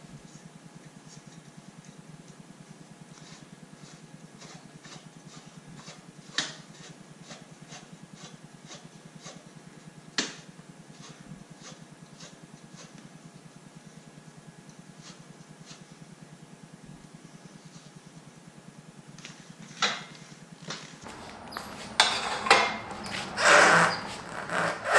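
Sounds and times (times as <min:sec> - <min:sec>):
low steady hum: 0:21.0 - 0:24.9.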